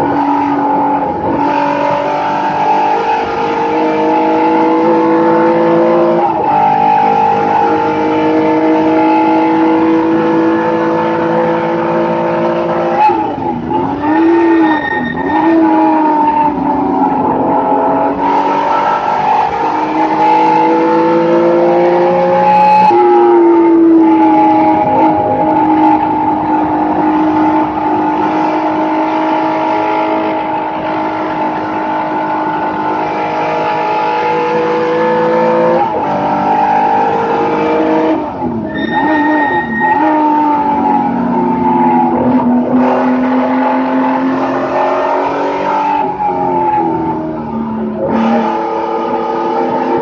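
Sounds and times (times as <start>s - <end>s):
race car engine revving: 0.0s - 50.0s
tyre squeal: 12.9s - 16.5s, 38.6s - 42.3s.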